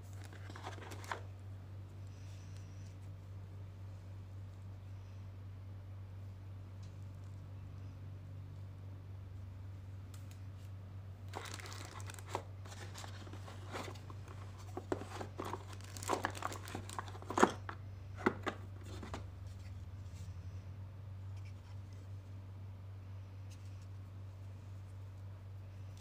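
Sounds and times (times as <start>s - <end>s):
plastic wrap crinkling: 0.0s - 1.3s, 11.3s - 19.2s
steady low hum: 0.0s - 26.0s.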